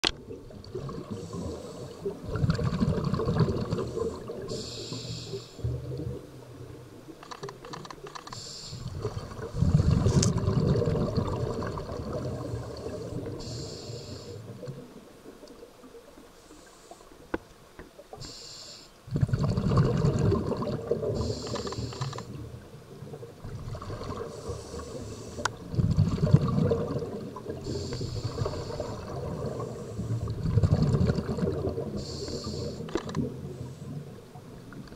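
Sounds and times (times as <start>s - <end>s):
low underwater bubbling: 0.0s - 4.7s, 8.8s - 13.7s, 19.0s - 34.9s
regulator inhalation hiss: 1.1s - 2.1s, 3.8s - 5.6s, 8.3s - 9.0s, 12.4s - 14.5s, 18.2s - 19.0s, 21.2s - 22.4s, 24.3s - 25.6s, 27.6s - 30.3s, 31.9s - 34.0s.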